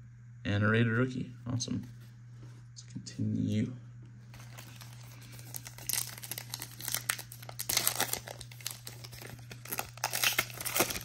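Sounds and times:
foil wrapper crinkling: 0:04.3 - 0:11.0.

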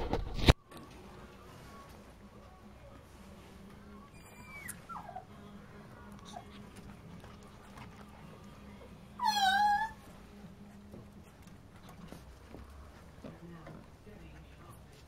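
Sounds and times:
puppy whining: 0:04.1 - 0:10.2.

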